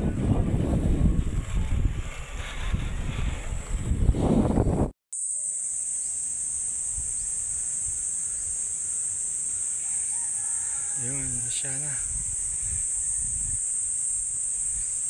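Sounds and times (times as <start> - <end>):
wind and road noise: 0.0 - 4.9, 9.8 - 15.0
insects droning high-pitched: 5.2 - 15.0.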